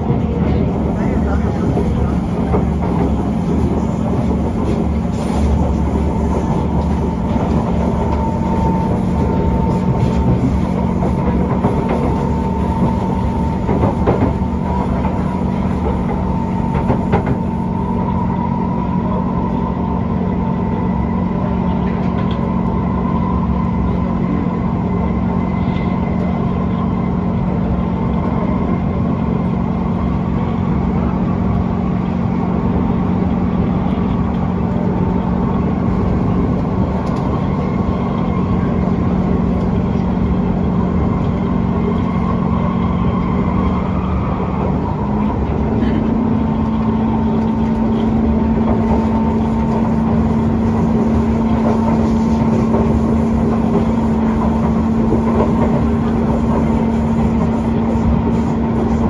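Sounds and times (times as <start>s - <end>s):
train running on rails: 0.0s - 59.0s.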